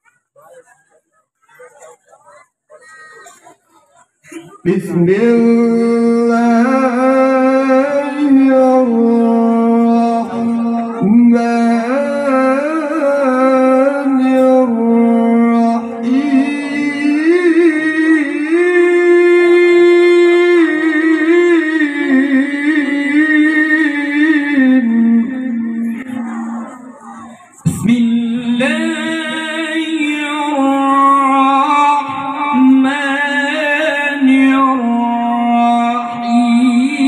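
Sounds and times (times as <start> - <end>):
man reciting melodically into microphone: 4.2 - 37.0.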